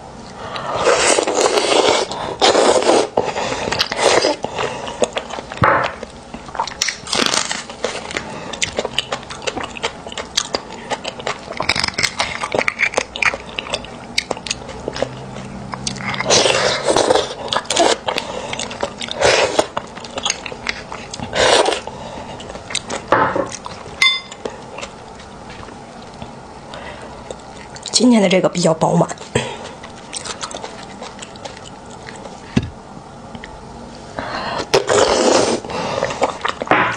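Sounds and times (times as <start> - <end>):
wet chewing and lip smacks: 8.6 - 16.3, 22.4 - 26.3, 29.2 - 32.4.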